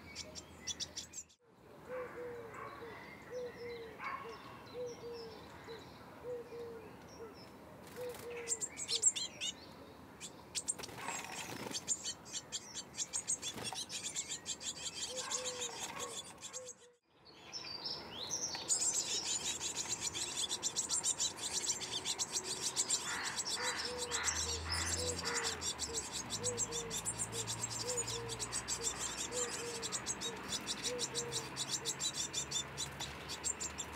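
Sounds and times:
songbirds chirping: 0.0 - 33.9
low cooing bird call: 1.9 - 9.2, 14.8 - 17.0, 22.7 - 32.7.

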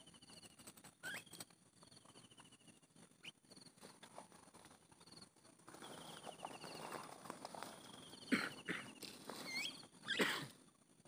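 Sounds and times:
small bird trills: 0.0 - 3.7, 7.8 - 10.2
bird squeaks: 0.9 - 1.5, 9.4 - 10.2.

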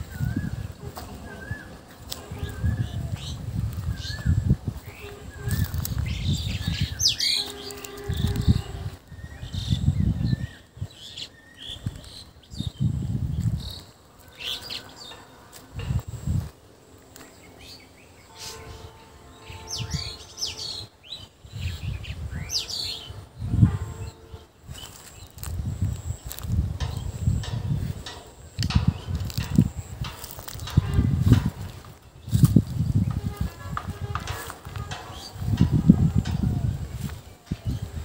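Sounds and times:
low microphone rumbles: 0.0 - 10.9, 21.5 - 38.0
small birds chirping: 0.0 - 38.0.

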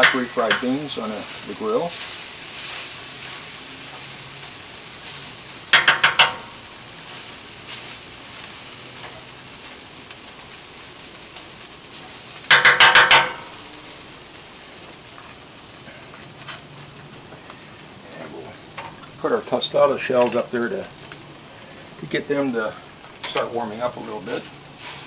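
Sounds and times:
masher clanking on metal griddle: 0.0 - 0.8, 5.7 - 6.6, 12.5 - 13.6, 23.2 - 23.6
beans sizzling on griddle: 0.0 - 25.0.

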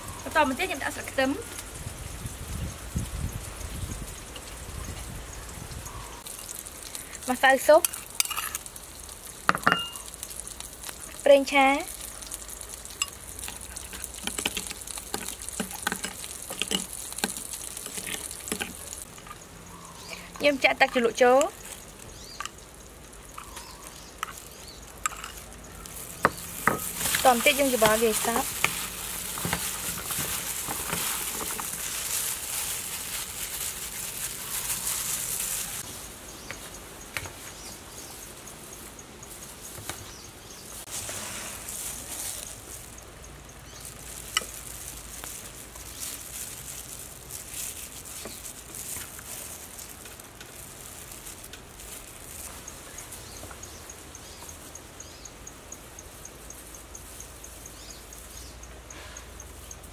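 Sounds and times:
insect chirps: 0.0 - 59.9
salad leaves rustling and squelching: 0.0 - 59.9
spoon clinking on ceramic plate: 9.5 - 10.0.

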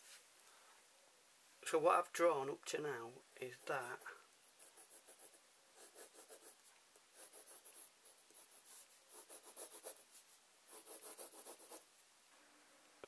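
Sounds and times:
pencil scratching on paper: 3.4 - 11.9.

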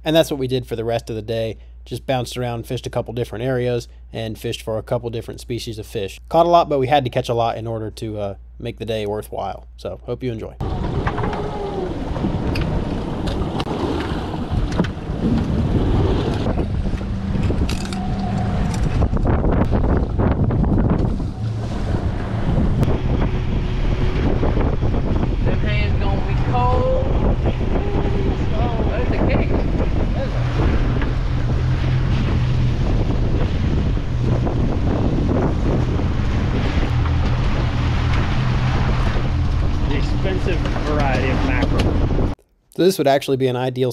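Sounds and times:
boat engine drone: 10.6 - 42.4
rough water wash: 10.6 - 42.4
sea: 10.6 - 42.4
wind buffeting microphone: 10.6 - 42.4.

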